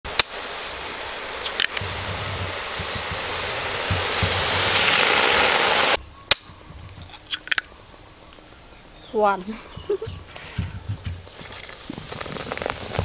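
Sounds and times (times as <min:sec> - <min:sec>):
carbonation hissing: 0:00.1 - 0:06.0, 0:10.0 - 0:13.0.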